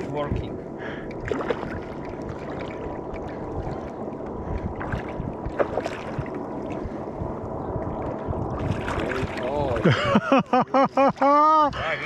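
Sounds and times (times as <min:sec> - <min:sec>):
fish splashing in shallow water: 0:00.9 - 0:11.6.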